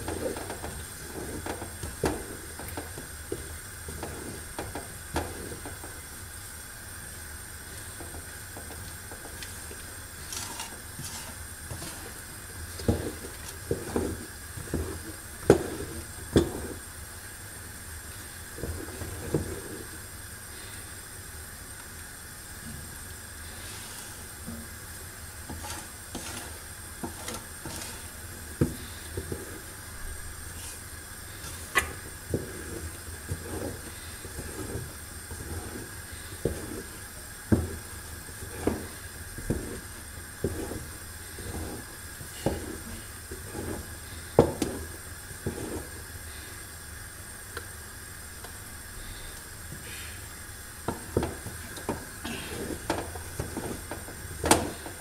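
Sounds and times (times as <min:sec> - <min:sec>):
wooden spoon scraping a metal pot: 0:00.0 - 0:06.0, 0:07.9 - 0:16.9, 0:18.2 - 0:20.0, 0:23.5 - 0:24.7, 0:25.4 - 0:29.8, 0:30.5 - 0:46.6, 0:50.9 - 0:55.0
steady hiss: 0:00.0 - 0:55.0.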